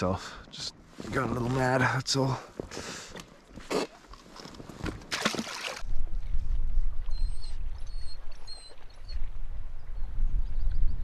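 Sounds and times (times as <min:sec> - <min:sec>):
water around kayak hull: 0:02.6 - 0:10.2
wind rumbling on microphone: 0:05.8 - 0:11.0.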